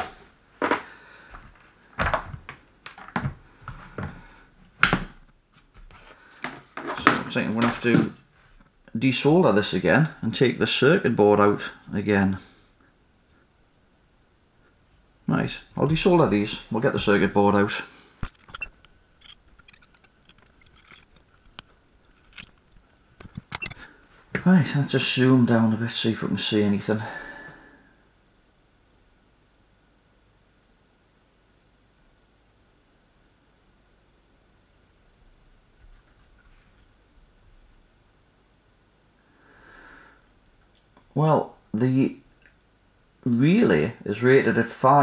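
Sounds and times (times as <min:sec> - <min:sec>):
small clicks and scrapes: 0:18.2 - 0:23.9, 0:35.8 - 0:37.8.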